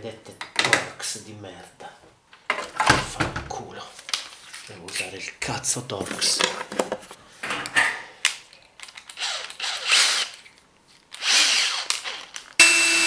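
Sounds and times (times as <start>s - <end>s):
cordless drill motor whine: 11.2s - 13.0s.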